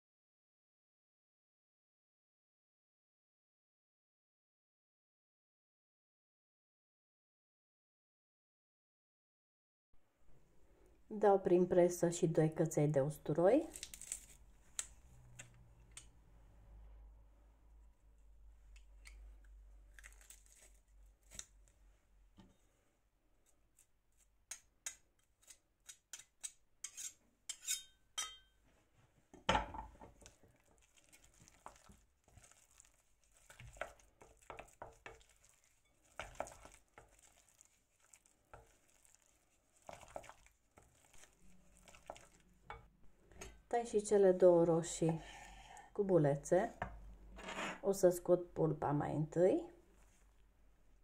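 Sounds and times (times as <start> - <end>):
wooden spoon scraping glass bowl: 26.8 - 28.4, 30.8 - 42.9.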